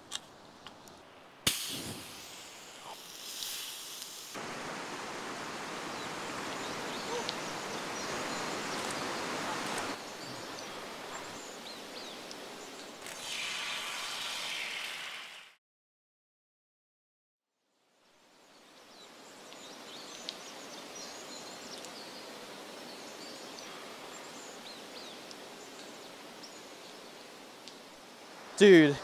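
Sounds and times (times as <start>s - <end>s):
outdoor ambience: 0.0s - 15.6s, 17.8s - 29.0s
river water rushing over rocks: 4.4s - 11.4s.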